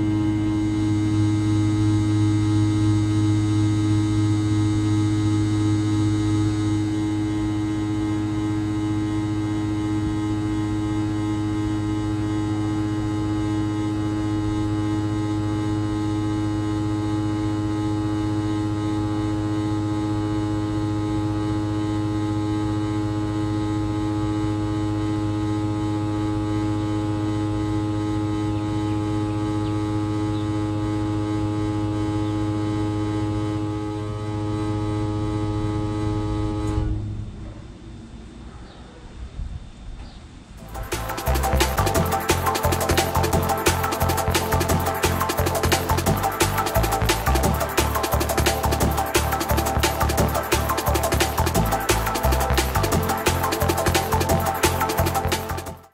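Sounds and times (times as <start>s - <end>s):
heat pump electrical hum: 0.0s - 55.9s
fan coasting to a stop: 40.0s - 55.9s.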